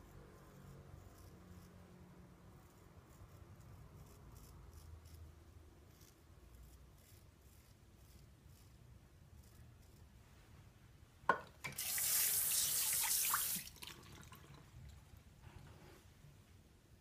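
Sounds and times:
tap water running into sink: 11.3s - 14.6s.

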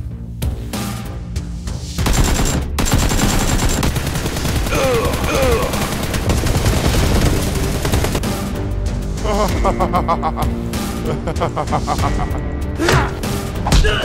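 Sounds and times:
automatic gunfire: 2.0s - 8.3s
man yelling: 12.8s - 14.0s.

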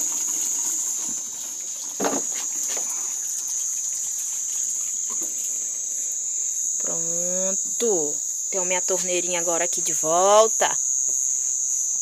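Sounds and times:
tap water running into basin: 0.0s - 5.8s
insects chirring: 0.0s - 12.0s.

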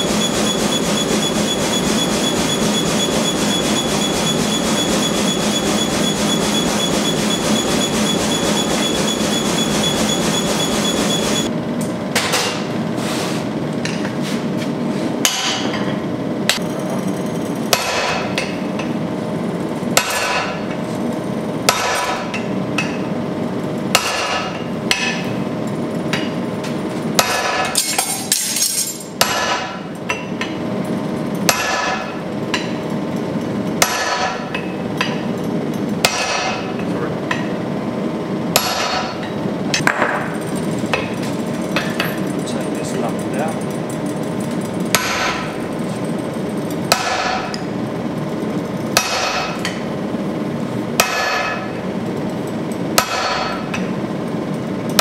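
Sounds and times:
gas forge roaring: 0.0s - 27.2s
hammer ringing on anvil: 51.0s - 51.7s.

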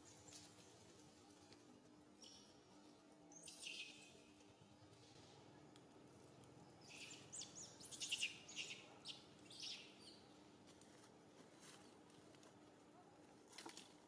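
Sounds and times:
high bird chirps: 6.8s - 10.2s.

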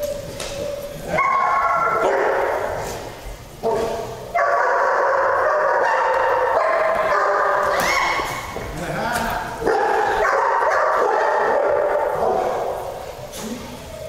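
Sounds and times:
dog crying out: 7.0s - 8.5s.

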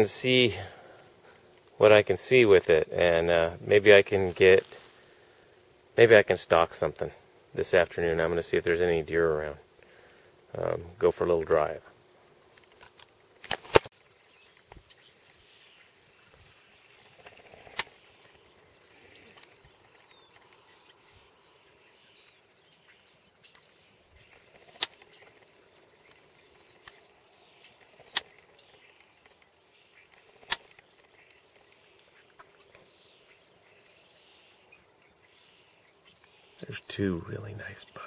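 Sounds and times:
bird calls: 13.8s - 38.0s.

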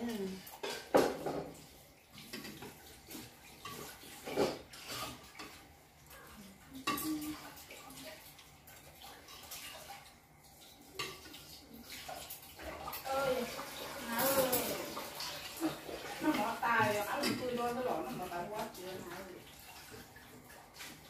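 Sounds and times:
utensils clinking on ceramic bowls: 6.7s - 7.6s, 14.0s - 20.0s.

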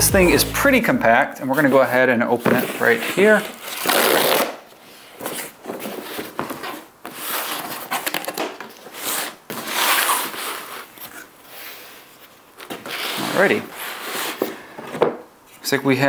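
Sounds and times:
packing tape ripping: 3.4s - 4.7s, 6.6s - 11.0s
cardboard rustling and scraping: 5.0s - 11.2s.

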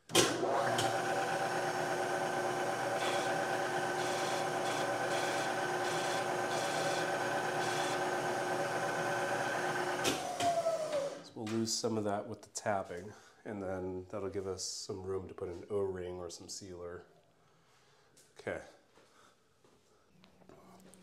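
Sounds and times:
mill spindle whine: 0.1s - 11.2s.

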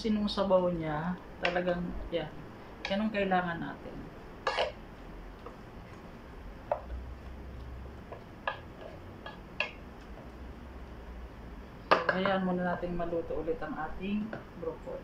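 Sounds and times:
wooden spoon stirring soup: 4.4s - 10.4s
spoon knocking on pot: 8.1s - 9.8s.

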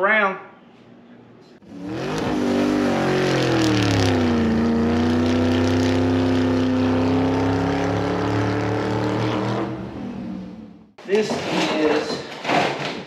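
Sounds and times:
car engine sound effect: 1.6s - 11.0s.

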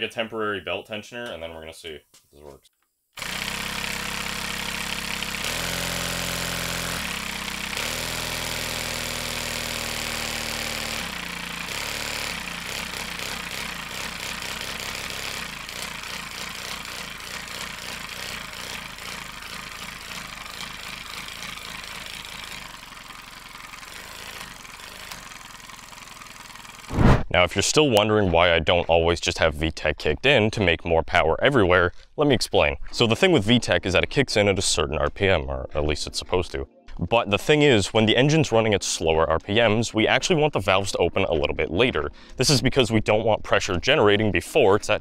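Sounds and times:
compressed-air engine running: 3.2s - 27.4s
chugging air puffs: 3.2s - 27.7s.

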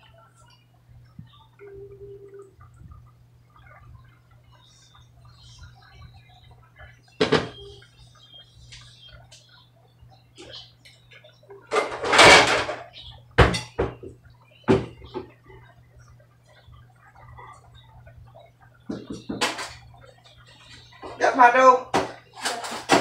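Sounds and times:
clattering rustle: 11.7s - 12.9s, 22.0s - 23.0s.

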